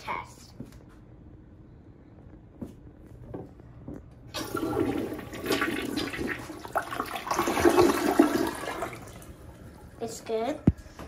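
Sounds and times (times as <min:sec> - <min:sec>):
toilet flushing: 0:04.3 - 0:10.3
water swirling down drain: 0:04.4 - 0:10.0.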